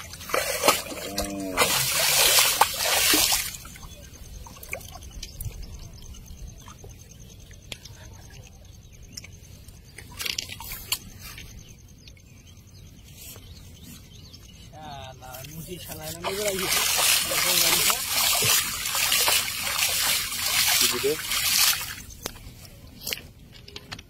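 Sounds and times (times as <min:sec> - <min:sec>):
water dripping and trickling: 0:00.0 - 0:11.1, 0:15.2 - 0:23.2
water splashing and sloshing: 0:00.0 - 0:12.4, 0:15.3 - 0:24.0.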